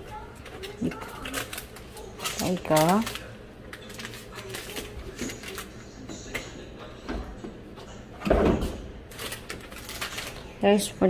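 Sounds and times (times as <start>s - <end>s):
dishwasher door thump: 8.2s - 8.9s.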